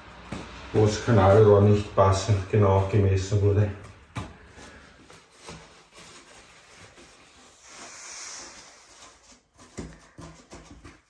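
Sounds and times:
rustling and scratching of insulation: 0:00.3 - 0:11.0
brief hiss: 0:07.6 - 0:08.9.

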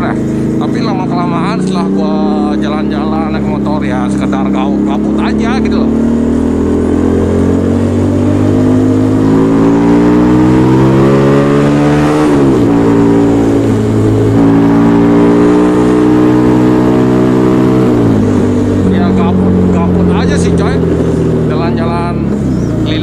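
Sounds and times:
motorcycle engine accelerating: 0:00.0 - 0:23.0.

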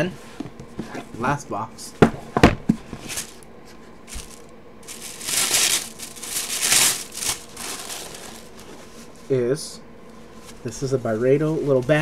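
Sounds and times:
paper packaging rustling: 0:04.1 - 0:09.0.

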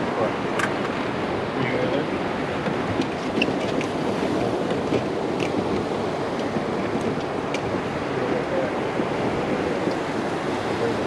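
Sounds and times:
wind buffeting microphone: 0:00.0 - 0:11.0
water lapping against boat hull: 0:00.3 - 0:11.0.

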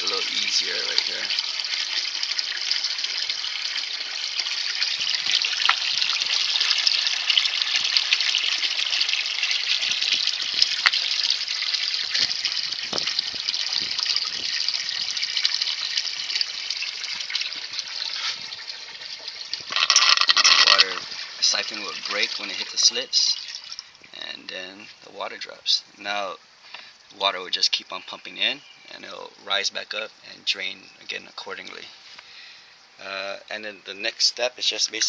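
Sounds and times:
water pouring into a bucket: 0:00.0 - 0:24.1
water drips and plinks: 0:02.4 - 0:24.2.

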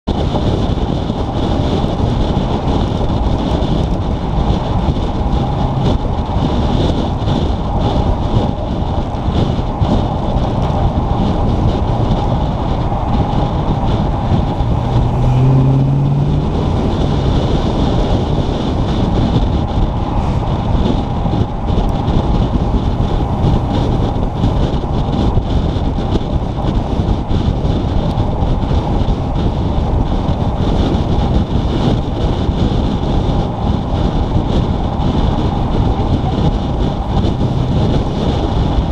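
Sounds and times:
vehicle road noise: 0:00.0 - 0:38.9
wind buffeting microphone: 0:00.0 - 0:38.9
short rising tone: 0:14.5 - 0:17.8.

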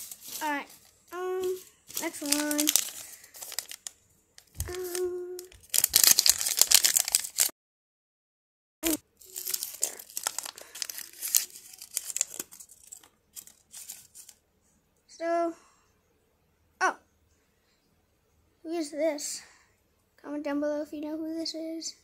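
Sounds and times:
wrapper crinkling: 0:00.0 - 0:07.5, 0:08.8 - 0:14.4
packet tearing open: 0:01.9 - 0:07.5, 0:08.8 - 0:14.4.

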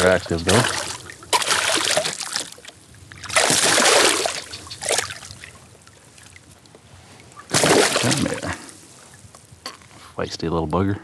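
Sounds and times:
fish splashing at water surface: 0:00.0 - 0:05.5, 0:07.5 - 0:08.6
quiet water sounds: 0:00.0 - 0:10.9.

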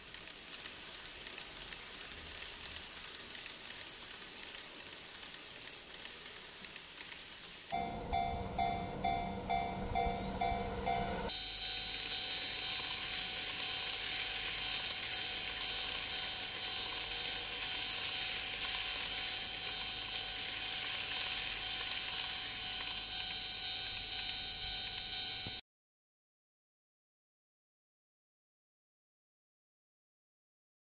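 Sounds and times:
rattle of wheels: 0:00.0 - 0:11.3
model train motor whine: 0:00.0 - 0:25.6.

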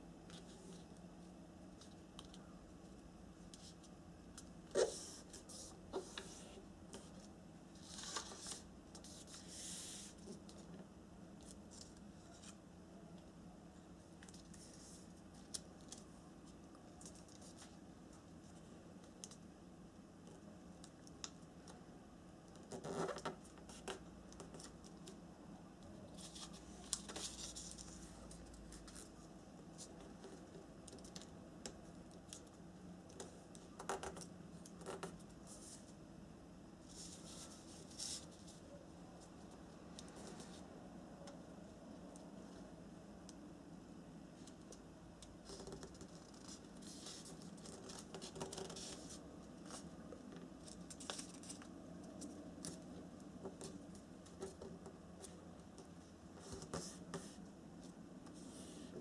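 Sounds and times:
faint steady hum: 0:00.0 - 0:59.0
paper rustling and crinkling: 0:05.5 - 0:10.6.

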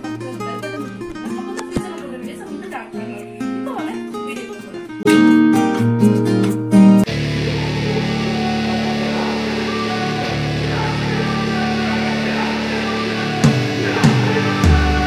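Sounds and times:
rock music with distorted chords: 0:05.0 - 0:15.0.

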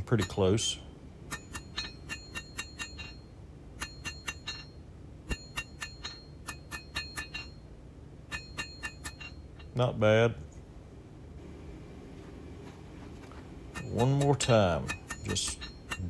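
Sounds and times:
hammer striking metal on anvil: 0:00.0 - 0:09.8, 0:13.7 - 0:16.0.

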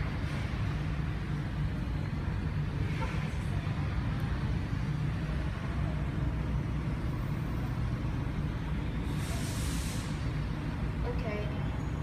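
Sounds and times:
brief hiss: 0:09.1 - 0:10.3.

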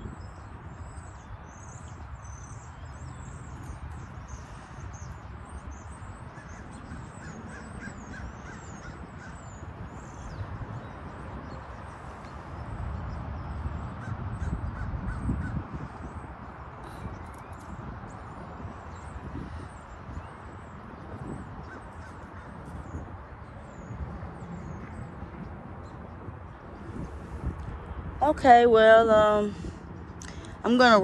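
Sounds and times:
small birds chirping: 0:00.0 - 0:27.6
crows cawing: 0:06.4 - 0:09.5.

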